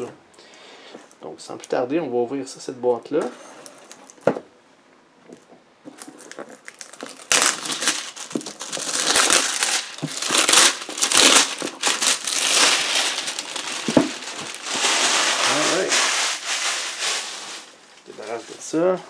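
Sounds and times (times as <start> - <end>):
plastic shrink-wrap crinkling: 5.9 - 19.0.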